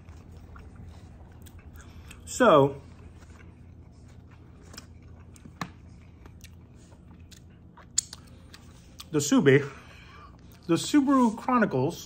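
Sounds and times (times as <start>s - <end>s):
mouth chewing food: 0.0s - 9.2s
mouth clicks and smacks: 7.3s - 9.1s.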